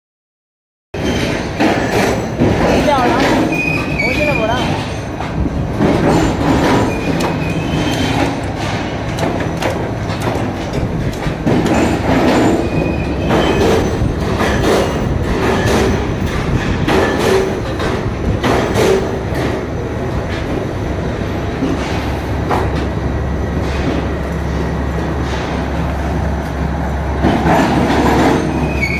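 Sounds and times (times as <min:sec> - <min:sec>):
tube squealing in rollers: 0:01.0 - 0:05.3, 0:06.1 - 0:09.0, 0:11.7 - 0:17.7, 0:27.6 - 0:28.9
metal clanks and rattles: 0:01.0 - 0:20.6, 0:23.6 - 0:28.9.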